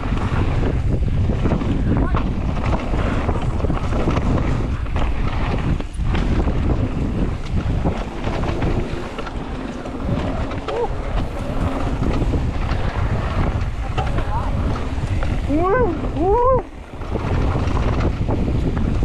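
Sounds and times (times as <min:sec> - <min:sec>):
bike clicks and rattles: 0:00.0 - 0:19.0
bike tyres rolling on dirt: 0:00.0 - 0:19.0
wind rushing over microphone: 0:00.0 - 0:19.0.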